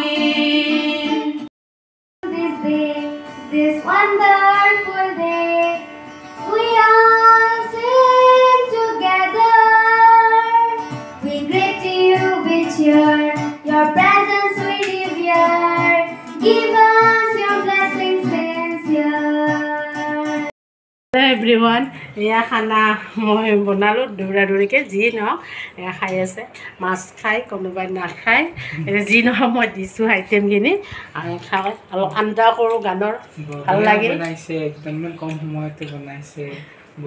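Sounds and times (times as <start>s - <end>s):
acoustic guitar: 0.0s - 1.5s, 2.2s - 20.5s, 28.0s - 37.0s
girl singing: 0.0s - 1.5s, 2.2s - 20.5s.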